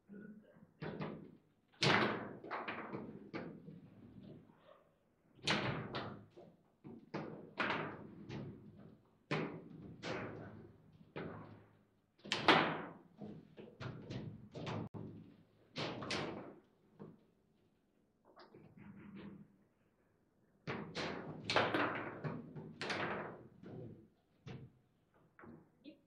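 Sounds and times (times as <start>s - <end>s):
table football knocks and clacks: 0.8s - 4.4s, 5.4s - 17.2s, 20.7s - 25.7s.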